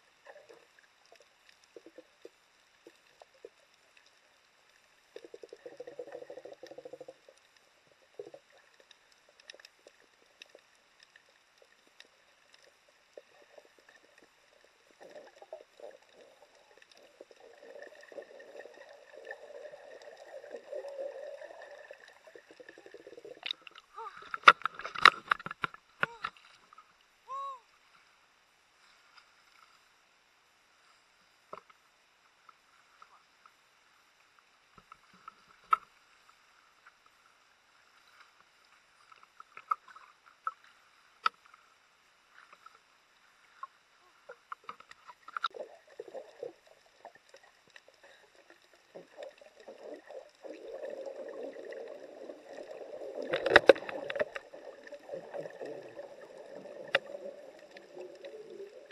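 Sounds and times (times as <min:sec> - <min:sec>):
muffled underwater sounds: 0:00.0 - 0:58.9
bubbling sloshing water: 0:00.1 - 0:26.3, 0:44.2 - 0:58.9.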